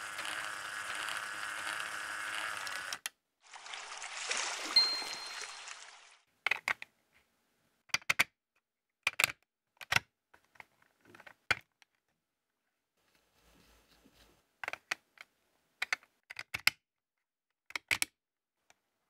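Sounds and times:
brief high tone: 4.7s - 6.0s
plastic pieces clicking together: 9.0s - 11.8s, 15.8s - 16.8s, 17.7s - 18.1s.

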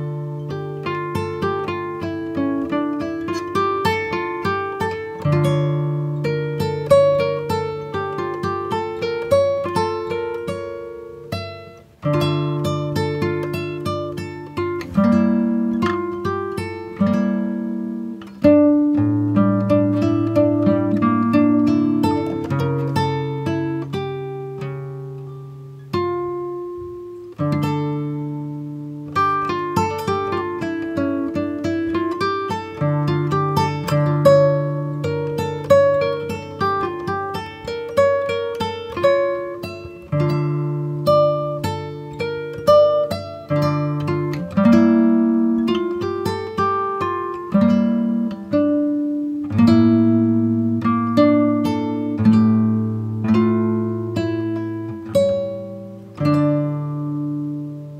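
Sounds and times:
acoustic guitar plucking: 0.0s - 57.9s.

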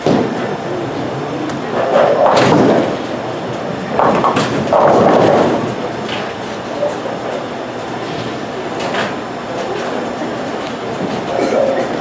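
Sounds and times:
bowling pins crashing: 0.0s - 6.9s
bowling balls rolling: 0.0s - 12.0s.

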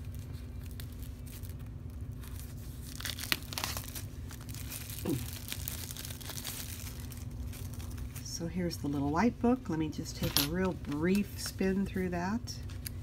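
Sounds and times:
plastic wrap tearing and crinkling: 0.0s - 8.3s.

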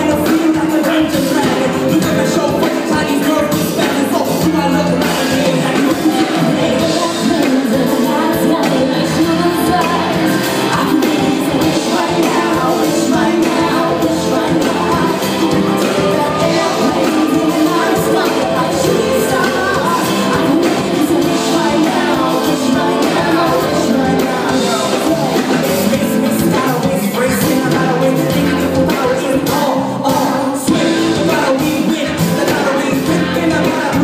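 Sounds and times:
man rapping: 0.0s - 10.0s, 23.4s - 34.0s
live band playing pop-rap: 0.0s - 34.0s
woman singing: 0.0s - 34.0s.

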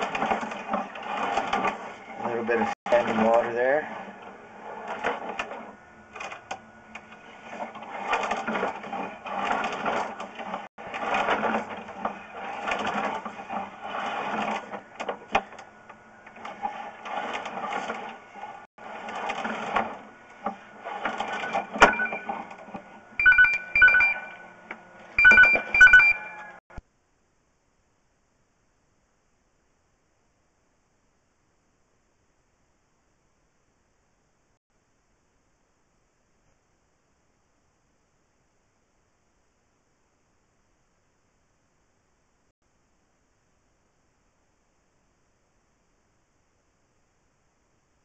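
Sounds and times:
cable scraping and rattling: 0.0s - 26.6s
two-tone electronic ring: 21.5s - 22.4s, 23.2s - 24.5s, 25.2s - 26.6s.

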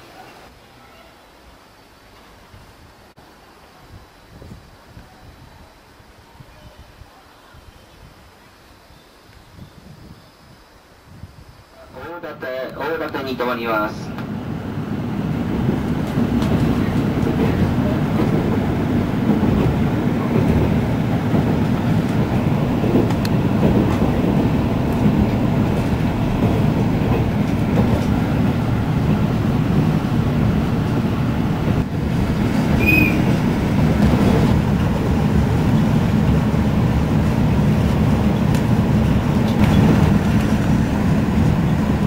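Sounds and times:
train wheels rumbling on rails: 13.8s - 42.0s.

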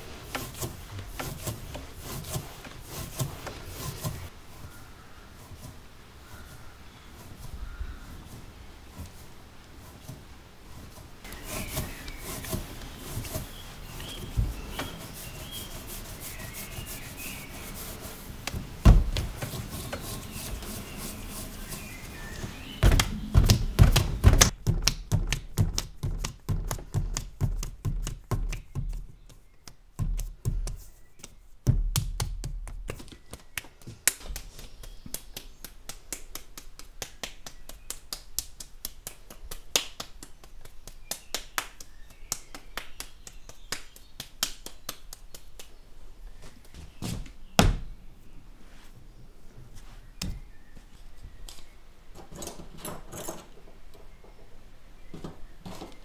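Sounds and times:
clay rubbing and pushing: 0.0s - 47.9s
hands patting clay: 9.9s - 45.8s
dull thumps of clay: 22.8s - 29.4s
hands slapping clay: 22.8s - 45.8s.

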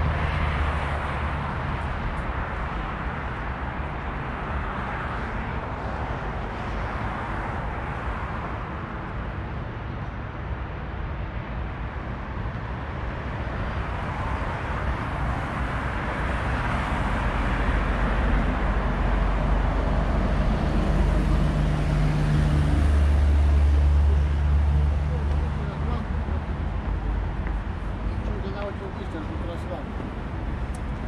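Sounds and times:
passing cars rushing: 0.0s - 8.9s, 12.7s - 31.0s
low engine hum: 14.9s - 31.0s.

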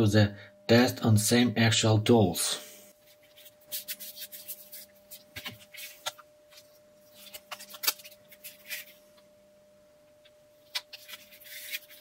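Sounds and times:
faint steady hum: 0.0s - 12.0s
paper rustling and clicks: 7.2s - 8.9s, 10.7s - 12.0s.

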